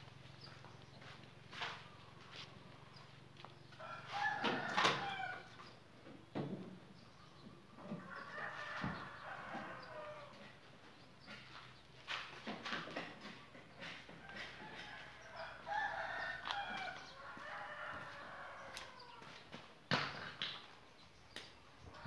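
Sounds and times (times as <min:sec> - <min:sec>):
rooster crowing: 0:03.8 - 0:05.6, 0:08.0 - 0:10.4, 0:14.3 - 0:19.4.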